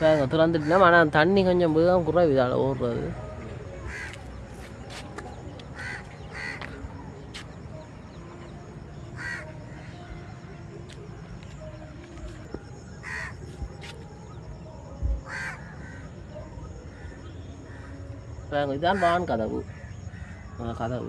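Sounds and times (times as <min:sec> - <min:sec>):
crow cawing: 0:03.9 - 0:04.2, 0:05.8 - 0:06.8, 0:09.2 - 0:09.8, 0:13.0 - 0:13.4, 0:15.3 - 0:16.1, 0:18.9 - 0:20.6.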